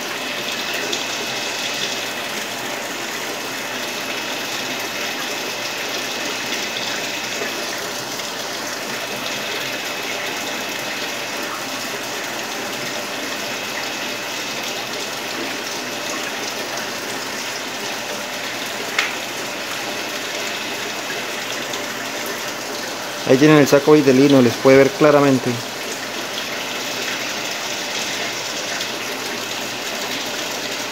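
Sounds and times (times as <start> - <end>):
running water in a tank: 0.0 - 30.9.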